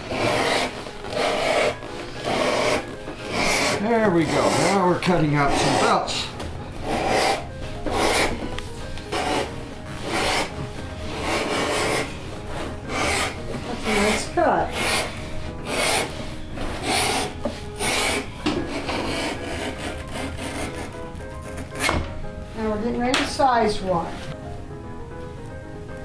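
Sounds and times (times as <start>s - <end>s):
blade rasping through leather: 0.0s - 6.1s, 6.8s - 8.4s, 9.1s - 10.5s, 11.1s - 22.0s.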